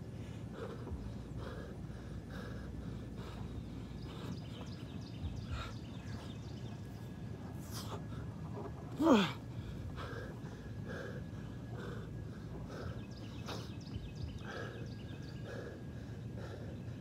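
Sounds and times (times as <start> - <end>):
man panting: 0.1 - 4.6, 9.0 - 17.0.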